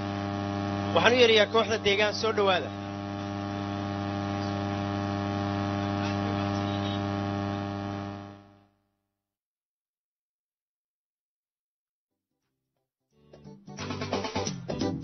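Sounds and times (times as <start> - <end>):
electrical mains hum: 0.0 - 8.6.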